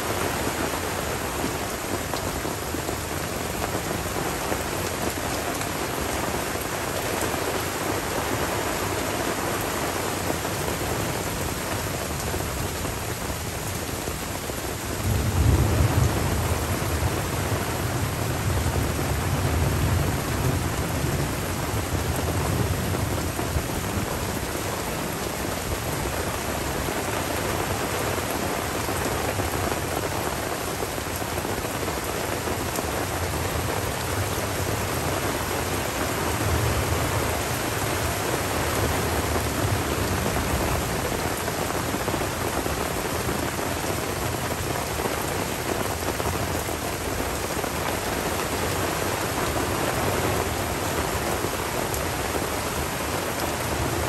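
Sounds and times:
rain falling on leaves: 0.0 - 54.0
thunder rumbling: 15.0 - 24.4.

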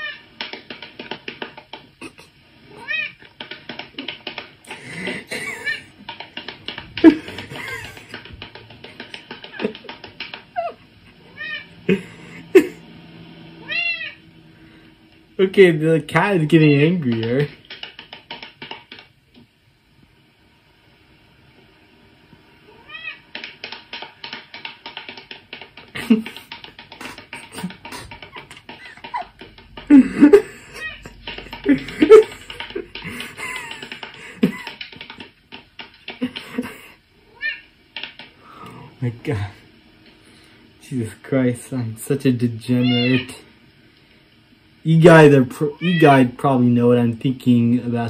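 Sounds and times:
man laughing: 2.0 - 2.4, 4.7 - 6.0, 7.0 - 8.3, 8.9 - 10.0, 11.8 - 12.8, 25.9 - 34.9, 36.2 - 37.0
cat meowing: 2.7 - 3.2, 10.5 - 11.8, 13.6 - 14.2, 22.7 - 23.2, 37.3 - 37.7, 42.7 - 43.4, 45.7 - 46.2
thumps: 3.1 - 12.8, 15.6 - 19.5, 23.3 - 36.9.

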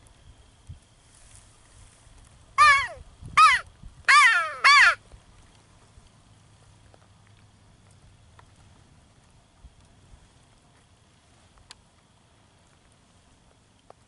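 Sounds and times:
crow cawing: 2.6 - 5.0.

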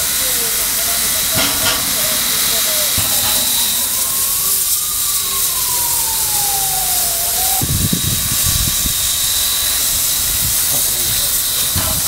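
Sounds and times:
steam locomotive hissing: 0.0 - 12.0
thin falling tone: 1.3 - 7.8
low thumps: 1.4 - 8.0.

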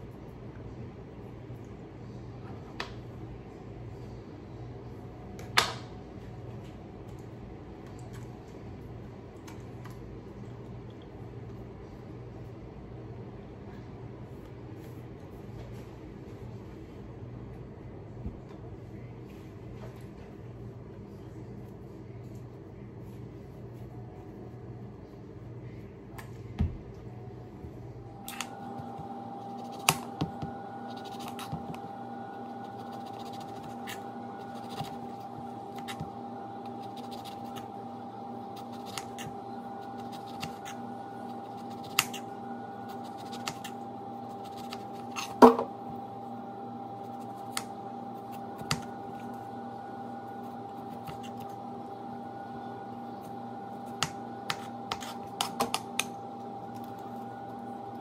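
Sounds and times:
steady hum with held tone: 0.0 - 58.0
knife cutting lemon peel: 30.9 - 31.8.

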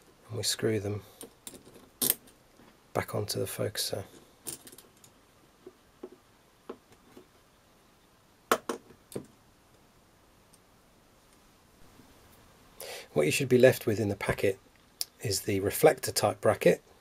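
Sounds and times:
small metal parts clicking: 1.2 - 2.4, 4.1 - 5.2.

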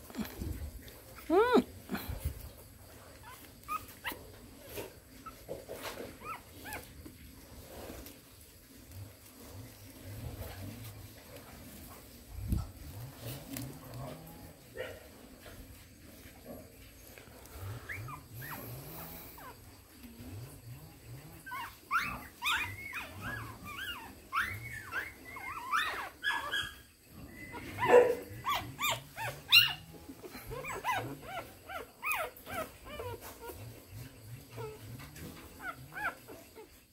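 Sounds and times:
puppies whining: 0.2 - 2.5, 3.1 - 7.2, 17.1 - 20.3, 21.0 - 36.9.

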